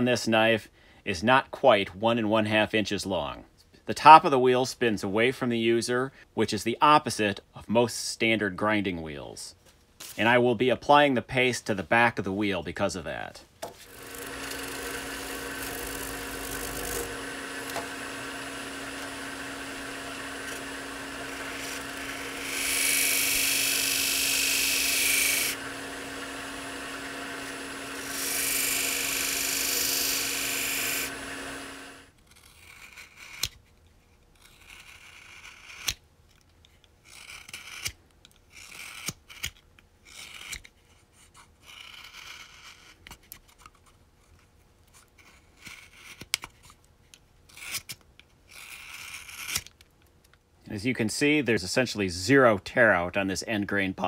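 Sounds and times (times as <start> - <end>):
sharpening wheel humming: 13.6 - 33.6
knife blade hissing on wheel: 21.4 - 25.6, 27.4 - 31.2.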